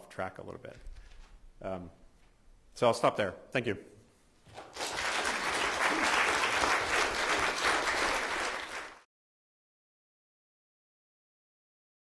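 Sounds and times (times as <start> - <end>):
audience applauding: 4.5 - 9.1.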